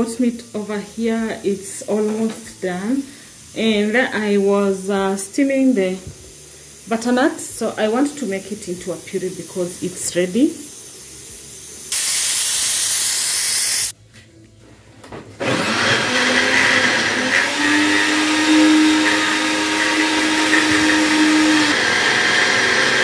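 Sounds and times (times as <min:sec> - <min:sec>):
loud hiss: 0:00.6 - 0:14.0
blender running: 0:15.4 - 0:23.0.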